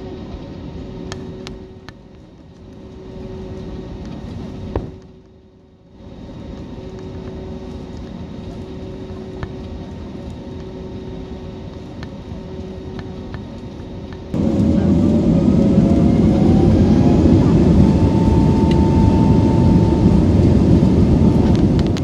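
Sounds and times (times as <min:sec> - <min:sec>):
airliner cabin rumble: 0:06.1 - 0:22.0.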